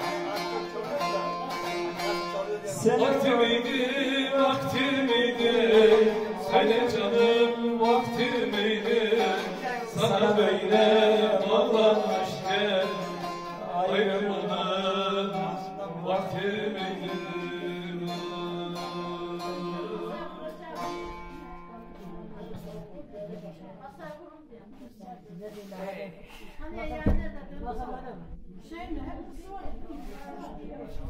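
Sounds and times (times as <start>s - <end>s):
man singing folk song: 0.0s - 22.1s
long-necked lute strummed and plucked: 0.0s - 22.8s.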